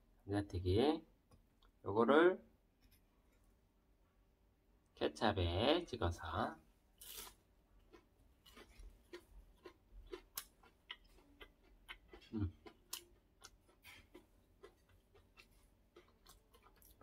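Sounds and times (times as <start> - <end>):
crunchy food chewing: 7.0 - 17.0.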